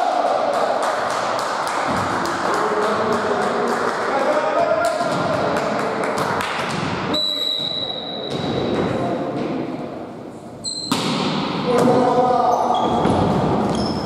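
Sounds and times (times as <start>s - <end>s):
players' voices: 0.0s - 10.1s, 11.5s - 14.0s
shrill whistle blast: 7.1s - 8.3s
sharp ball smacks: 10.9s - 11.5s.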